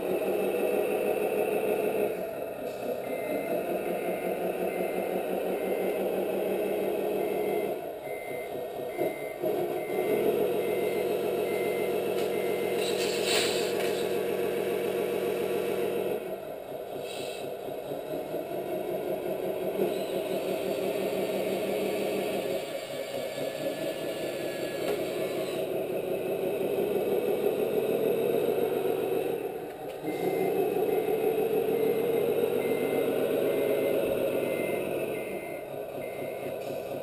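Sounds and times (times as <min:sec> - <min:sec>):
simulated diesel engine idling: 0:00.0 - 0:37.0
reversing beeper: 0:00.4 - 0:16.3, 0:23.4 - 0:25.7, 0:29.2 - 0:37.0.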